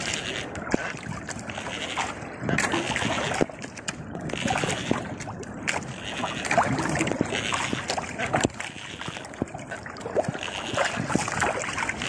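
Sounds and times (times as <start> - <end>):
waves splashing against boat hull: 0.0 - 12.0.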